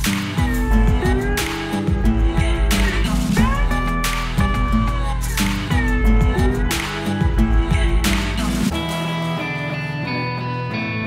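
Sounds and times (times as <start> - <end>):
music with steady beat: 0.0 - 11.0.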